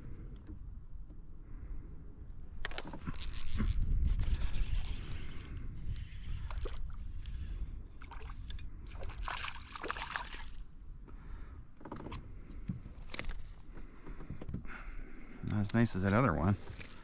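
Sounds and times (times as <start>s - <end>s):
fish splashing at the surface: 8.9s - 10.6s.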